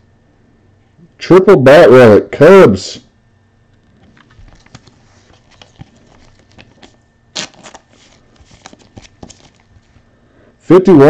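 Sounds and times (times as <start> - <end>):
cards and packaging clicking: 3.8 - 9.8
packaging rustle: 3.8 - 10.0.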